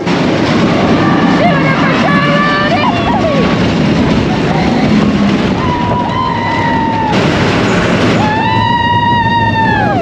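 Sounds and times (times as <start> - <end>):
roller coaster rumbling on track: 0.0 - 10.0
rider screaming: 8.2 - 10.0.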